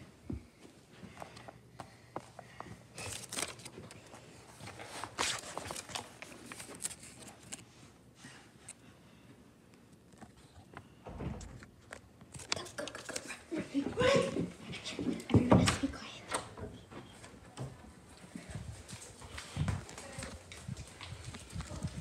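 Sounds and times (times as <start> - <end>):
paper rustling: 3.0 - 7.7.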